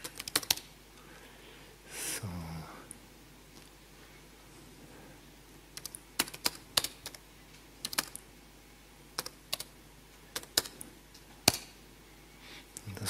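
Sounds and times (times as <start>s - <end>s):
computer keyboard keys clicking: 0.0s - 0.7s, 5.8s - 7.2s, 7.8s - 8.2s, 9.2s - 9.7s, 10.3s - 10.8s.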